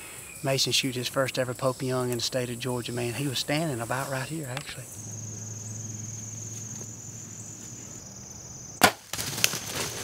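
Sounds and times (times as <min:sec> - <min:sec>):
bow shot crack: 0:08.8 - 0:09.9
deer running through dry leaves: 0:09.0 - 0:10.0.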